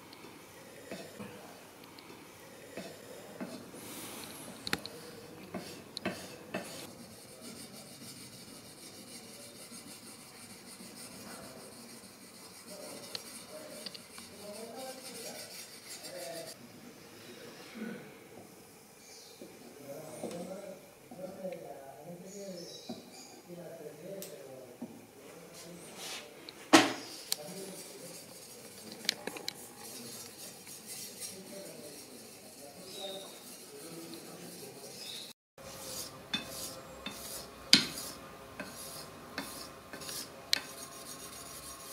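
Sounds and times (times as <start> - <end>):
sharpening stone scraping steel blade: 34.9 - 41.6.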